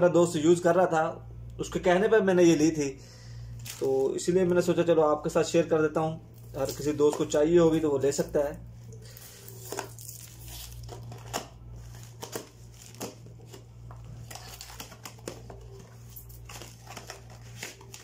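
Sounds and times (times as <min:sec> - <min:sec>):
steady low hum: 0:00.0 - 0:18.0
plastic wrap crinkling: 0:03.6 - 0:04.4, 0:08.9 - 0:18.0.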